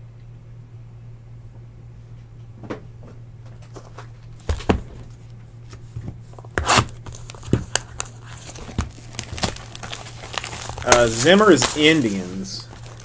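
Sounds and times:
cardboard rustling scrape: 5.9 - 13.0.

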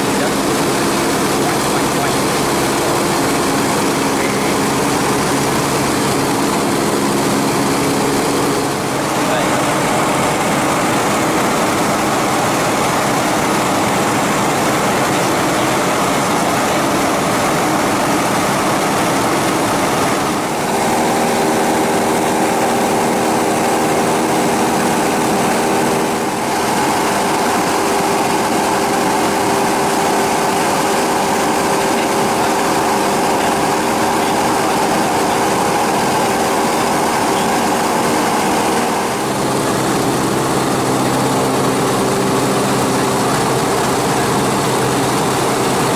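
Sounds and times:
aircraft engine droning in cabin: 0.0 - 45.9.

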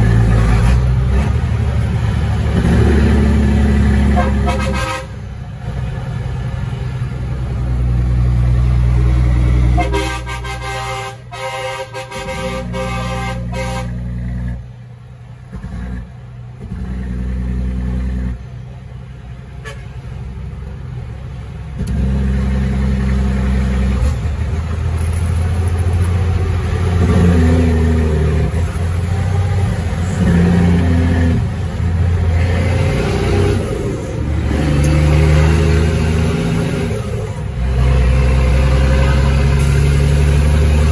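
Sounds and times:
truck diesel engine running: 0.0 - 40.9
truck horn: 3.9 - 5.4, 9.6 - 14.6, 19.6 - 20.1.

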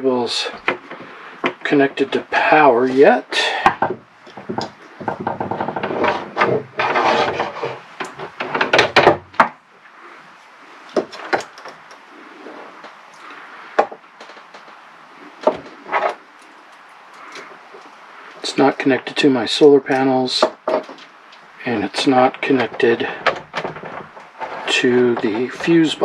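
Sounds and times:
tools clattering on wooden box: 19.9 - 26.0.

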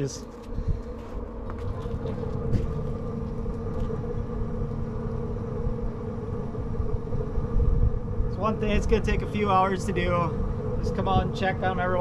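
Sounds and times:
low rumble: 0.0 - 12.0
smoker fan humming: 0.0 - 12.0.

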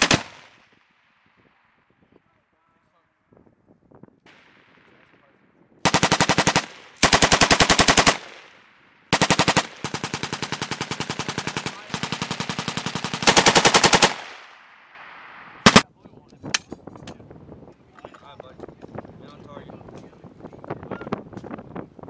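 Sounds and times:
machine gun automatic fire: 0.0 - 0.6, 5.8 - 14.4, 15.6 - 15.8.

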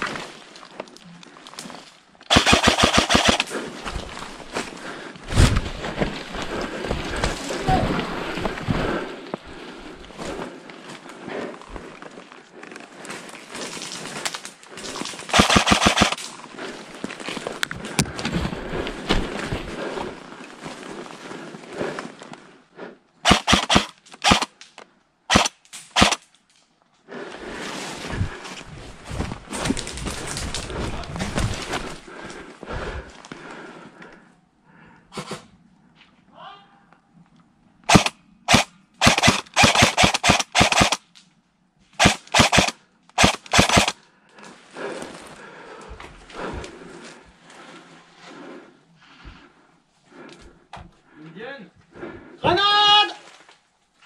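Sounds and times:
airsoft guns firing: 2.3 - 3.6, 15.3 - 16.2, 23.2 - 24.5, 25.3 - 26.2, 37.9 - 41.0, 42.0 - 44.0.

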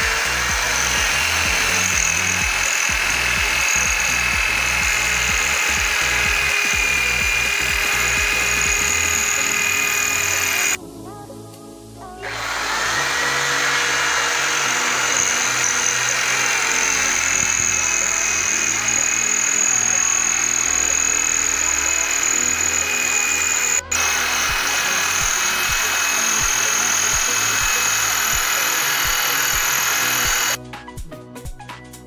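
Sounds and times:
electric drill boring into wall: 0.0 - 10.8, 12.2 - 30.6.

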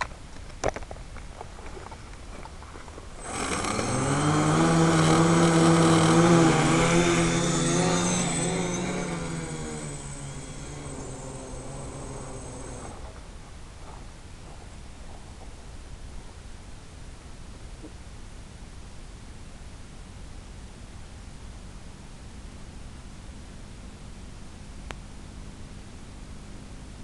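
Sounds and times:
quadcopter motors buzzing: 3.2 - 13.2.

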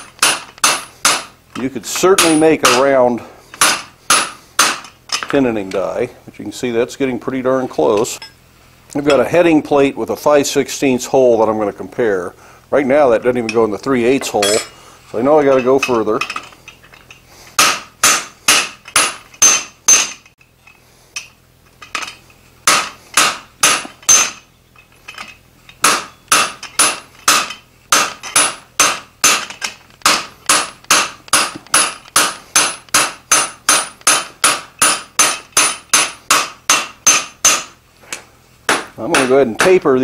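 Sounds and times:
hammer striking metal on anvil: 0.0 - 1.4, 2.0 - 3.0, 3.6 - 5.3, 14.2 - 14.8, 17.6 - 20.3, 22.7 - 24.4, 25.8 - 37.8, 38.7 - 39.8.

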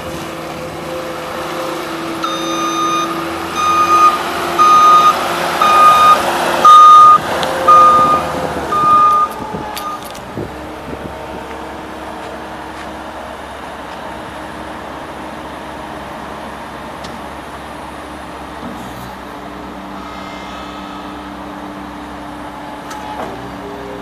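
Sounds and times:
hydraulics raising loader arms: 0.0 - 12.5
skid steer diesel engine: 0.0 - 24.0.

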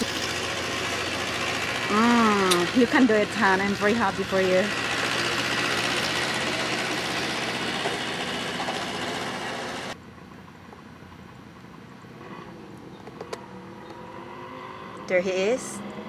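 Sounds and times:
light aircraft engine: 0.0 - 10.0, 12.1 - 16.0.

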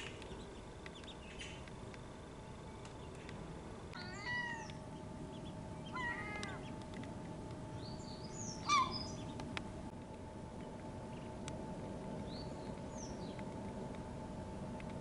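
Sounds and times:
wavering animal calls: 4.0 - 6.8, 8.2 - 9.3.

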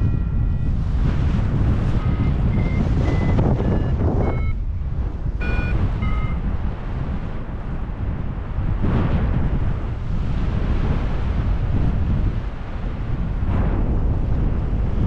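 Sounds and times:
variometer beeping: 0.0 - 0.8, 1.8 - 4.6, 5.4 - 6.5
wind noise on microphone: 0.0 - 15.0.

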